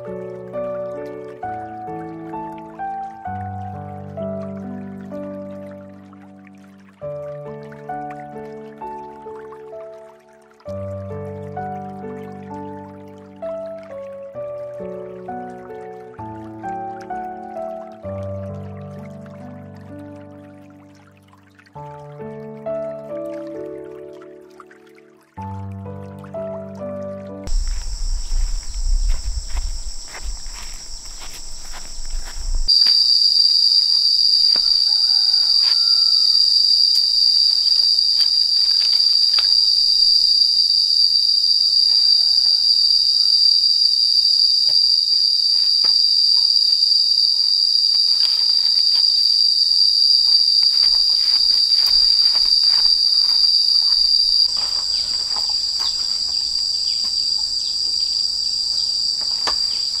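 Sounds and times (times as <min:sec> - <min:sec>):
high-pitched insect chorus: 0:27.5 - 1:00.0.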